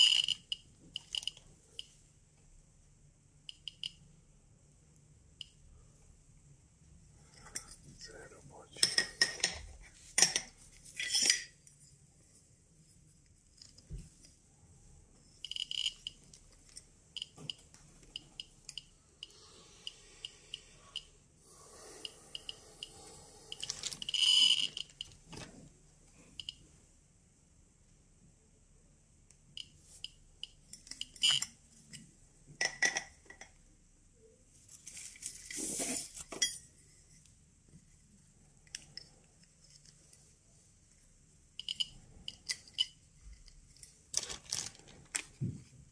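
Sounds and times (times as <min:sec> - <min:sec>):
metal parts clinking and rattling: 0:00.0 - 0:01.4, 0:10.2 - 0:11.6, 0:23.6 - 0:25.1, 0:30.7 - 0:31.6, 0:41.6 - 0:45.3.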